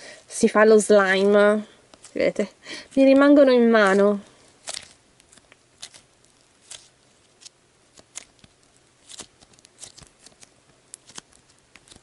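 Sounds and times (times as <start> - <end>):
slime clicking and crackling: 2.9 - 12.0.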